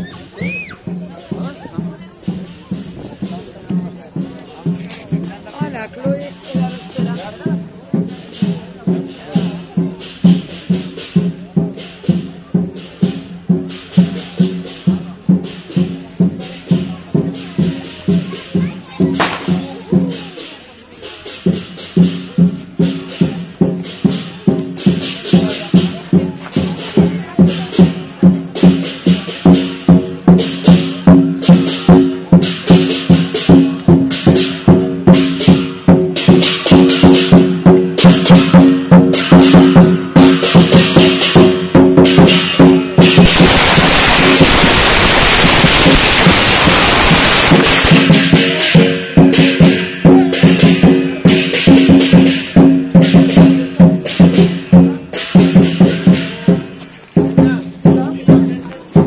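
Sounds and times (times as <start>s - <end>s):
large drum beaten fast: 0.0s - 59.0s
metallic cymbal crashes: 42.2s - 53.4s.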